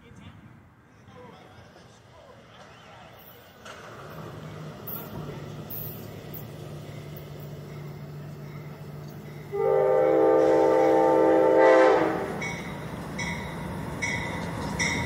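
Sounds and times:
locomotive horn blast: 9.5s - 12.4s.

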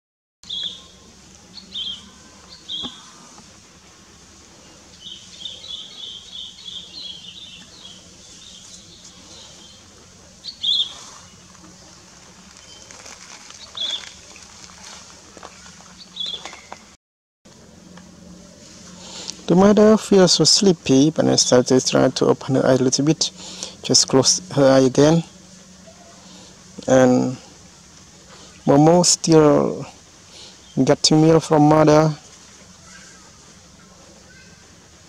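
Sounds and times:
birds chirping: 0.4s - 17.0s, 17.7s - 35.0s
faint low hum: 0.5s - 16.9s.

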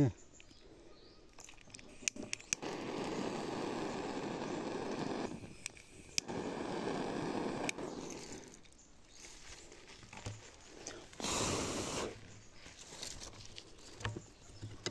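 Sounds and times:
sharp clicks: 1.3s - 8.8s
blowing breath onto smoke torch: 1.9s - 8.8s, 10.7s - 12.4s.

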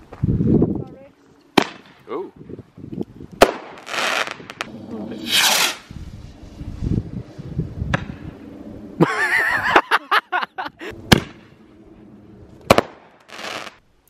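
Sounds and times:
firework bangs: 1.6s - 2.0s, 3.4s - 5.9s, 11.1s - 11.6s, 12.6s - 13.8s
firework shriek: 3.7s - 6.9s.

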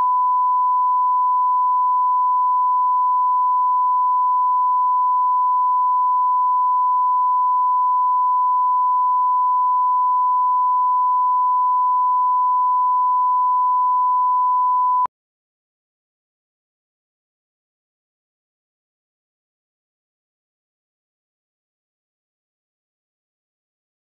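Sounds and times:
steady reference tone beep: 0.0s - 15.1s.

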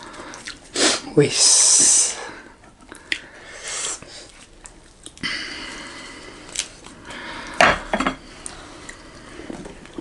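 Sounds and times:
rustling of food being torn: 6.4s - 7.1s.

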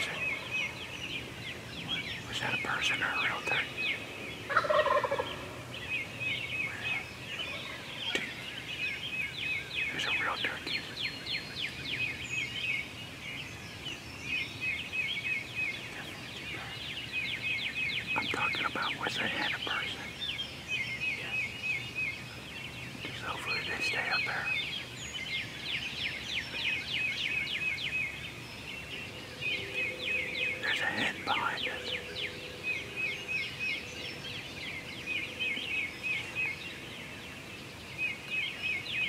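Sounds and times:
songbirds trilling: 0.0s - 39.0s
turkey gobbling: 4.5s - 5.3s.

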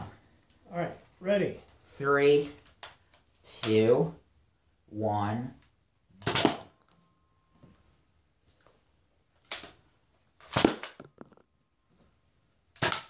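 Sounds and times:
toy dart blaster pops: 6.2s - 6.7s, 10.4s - 11.4s, 12.8s - 13.0s.

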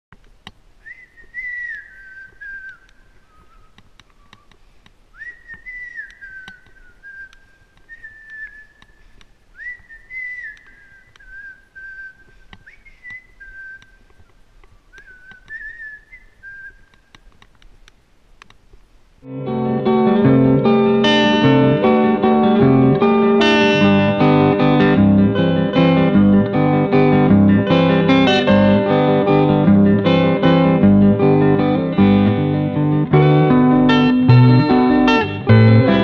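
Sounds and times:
person whistling a slow tune: 0.8s - 4.5s, 5.1s - 9.0s, 9.6s - 14.0s, 14.9s - 16.9s.

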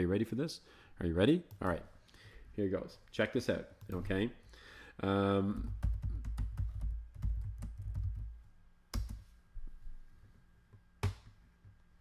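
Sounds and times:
computer keyboard typing: 5.5s - 9.2s.

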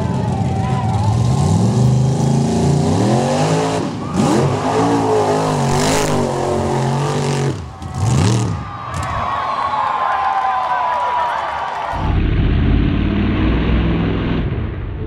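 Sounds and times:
engine revving hard: 1.3s - 8.6s, 11.9s - 15.0s.

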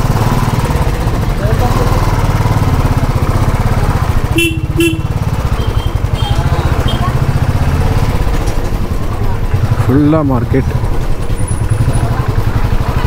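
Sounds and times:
motorcycle engine running: 0.0s - 13.0s
horn beeps: 4.3s - 7.3s.

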